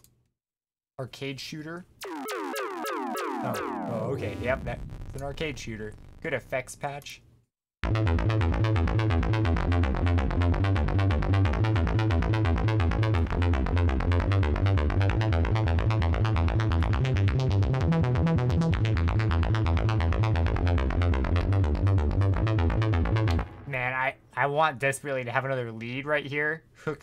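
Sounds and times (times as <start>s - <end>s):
pulsing bass: 2.0s - 6.7s, 7.8s - 23.8s
electronic synth pulses: 2.0s - 6.8s, 7.8s - 23.8s.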